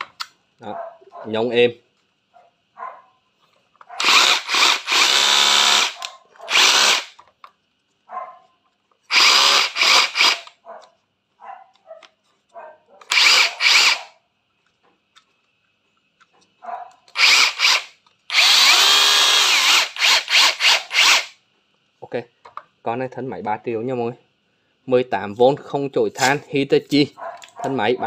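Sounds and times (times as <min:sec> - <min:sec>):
rotary hammer motor spinning: 0:04.0 - 0:07.2, 0:09.1 - 0:10.5, 0:13.1 - 0:14.2, 0:17.2 - 0:21.4.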